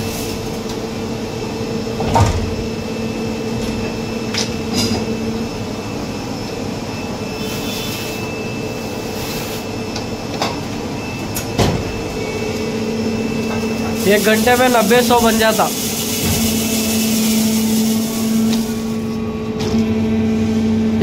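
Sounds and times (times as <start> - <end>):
moulding machine humming: 0.0 - 21.0
aerosol can hissing: 13.9 - 19.0.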